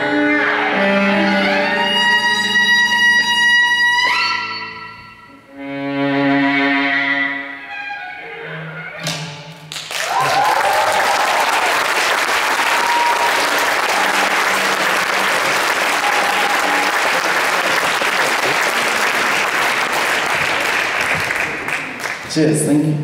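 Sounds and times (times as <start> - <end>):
violin note: 0.0 - 9.4
audience applause: 9.7 - 22.3
cheers and whoops: 10.0 - 14.8, 15.6 - 17.2.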